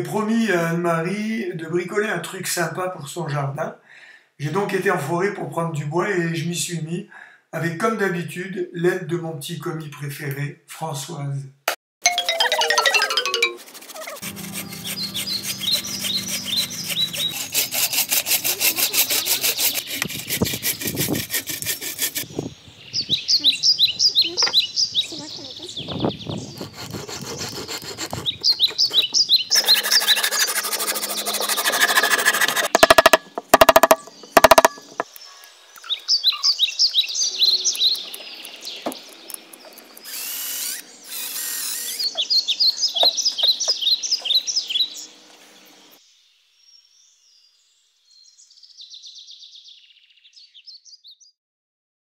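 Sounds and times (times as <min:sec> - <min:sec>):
hand saw cutting wood: 0:13.6 - 0:22.3, 0:26.5 - 0:35.0
small birds chirping: 0:14.0 - 0:17.8, 0:18.8 - 0:21.2, 0:22.2 - 0:46.0, 0:46.6 - 0:51.4
power drill running: 0:40.0 - 0:42.1.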